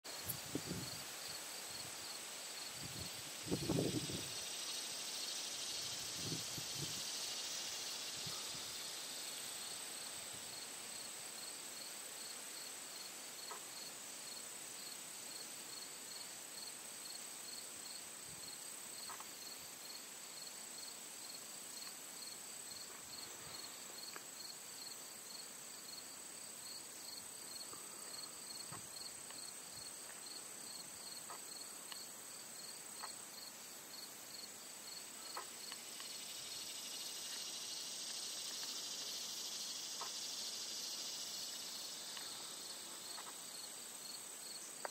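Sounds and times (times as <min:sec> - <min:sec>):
insect chirping: 0:00.0 - 0:44.9
high-pitched insect drone: 0:00.1 - 0:11.1, 0:34.3 - 0:44.6
faint ticks: 0:13.4 - 0:13.7, 0:19.0 - 0:19.4, 0:21.8 - 0:22.0, 0:24.0 - 0:24.3, 0:27.7 - 0:30.3, 0:31.2 - 0:32.1, 0:33.0 - 0:33.2, 0:35.0 - 0:36.3, 0:37.3 - 0:39.2, 0:39.9 - 0:40.3, 0:41.4 - 0:43.5.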